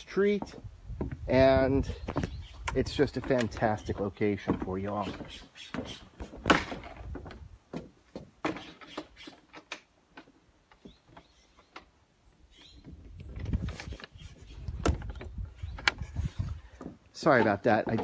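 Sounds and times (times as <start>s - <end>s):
footsteps on wooden deck: 0.0s - 18.0s.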